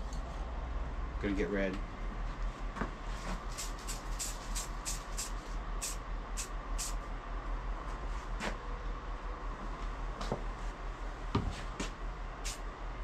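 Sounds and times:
spray can ball rattling: 0:03.5 - 0:07.0.

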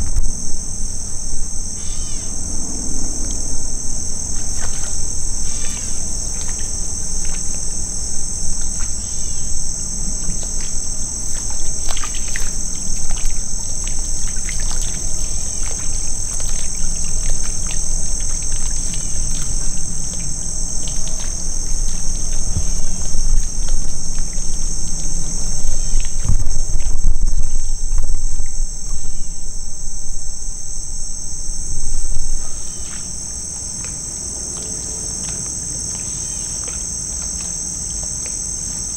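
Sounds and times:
low rumble: 0:00.0 - 0:08.9, 0:15.3 - 0:33.3
insect chorus chirring: 0:00.0 - 0:38.9.

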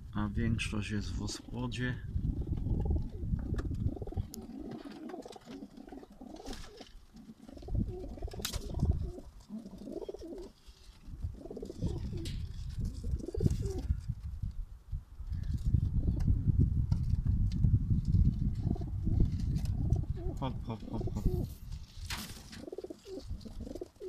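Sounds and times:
pigeons cooing: 0:02.2 - 0:13.9, 0:18.6 - 0:21.5, 0:22.5 - 0:24.0.

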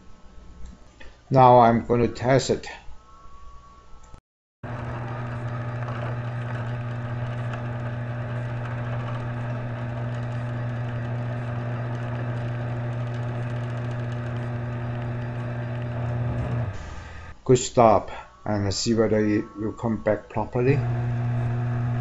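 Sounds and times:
garage door opener motor humming: 0:04.6 - 0:17.3, 0:20.7 - 0:22.0.

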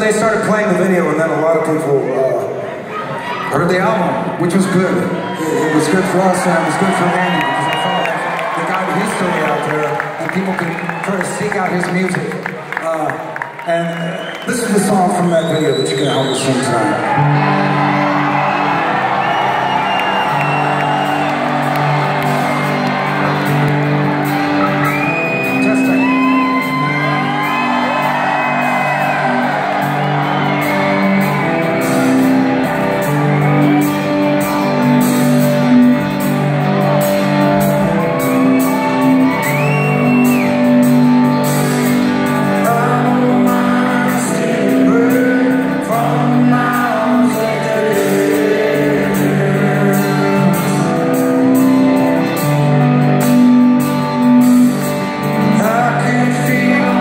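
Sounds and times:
live rock band: 0:00.0 - 0:57.0
audience whooping and shouting: 0:02.2 - 0:12.2, 0:12.8 - 0:44.1.

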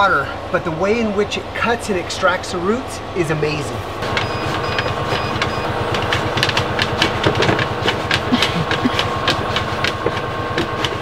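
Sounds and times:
engine hum: 0:00.0 - 0:11.0.

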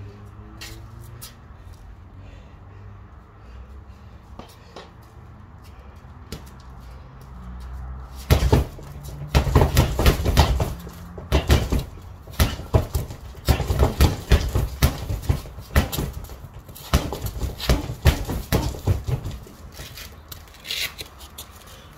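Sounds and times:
boxing gloves hitting punching bag: 0:08.2 - 0:20.0.

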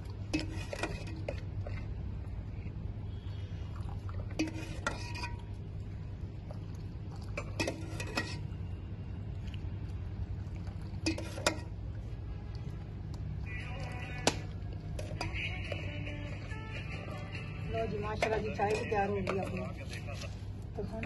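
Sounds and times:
steel ladle clinking on metal pot: 0:04.3 - 0:05.6, 0:07.4 - 0:08.5, 0:11.0 - 0:11.8, 0:17.9 - 0:19.6.

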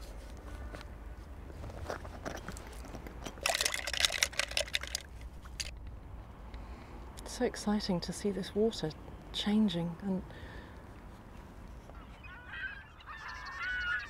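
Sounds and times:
tools rattling in a pot: 0:01.9 - 0:05.8.

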